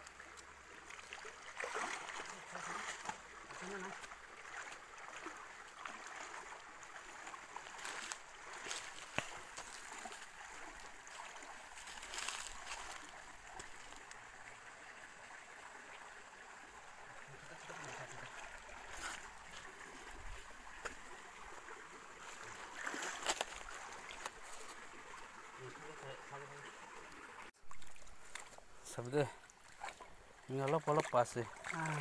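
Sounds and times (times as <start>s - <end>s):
stream flowing and trickling: 0.0s - 32.0s
splashes and knocks in water: 0.3s - 14.1s, 22.2s - 24.9s, 27.5s - 32.0s.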